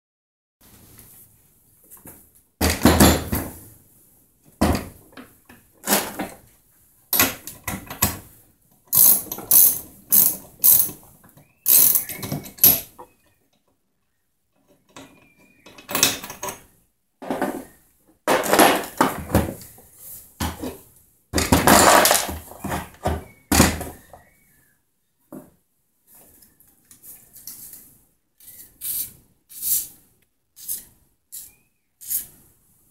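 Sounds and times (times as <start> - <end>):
plastic and metal clattering: 14.8 - 19.6, 21.4 - 24.1.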